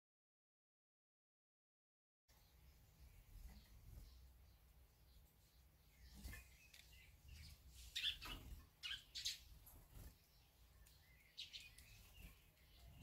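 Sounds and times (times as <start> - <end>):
swallow chirping: 6.0 - 9.5.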